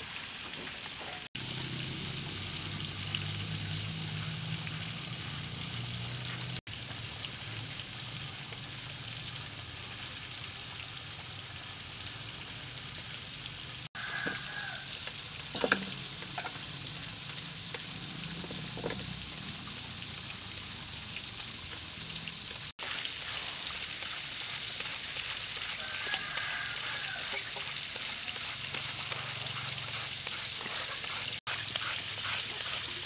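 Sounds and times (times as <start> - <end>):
peeler rasping mango into shreds: 22.8 - 33.0
peelers scraping mango skin: 22.8 - 33.0.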